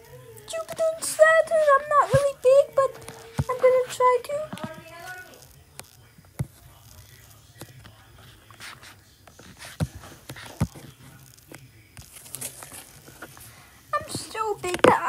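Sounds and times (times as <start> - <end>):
stylus tapping tablet screen: 0.7 - 5.2, 8.5 - 11.0, 14.0 - 15.0.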